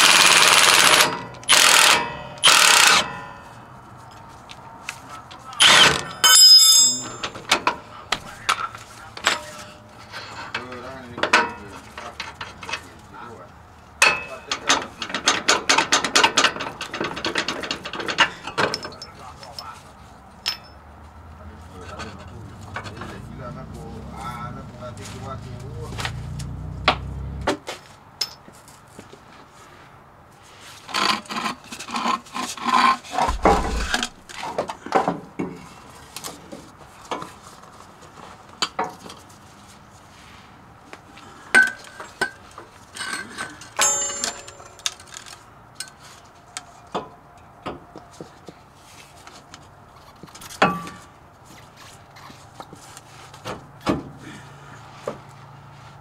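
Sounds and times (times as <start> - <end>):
metal parts and tools clinking: 5.6 - 7.8, 14.0 - 19.8, 20.4 - 20.8, 41.6 - 46.0.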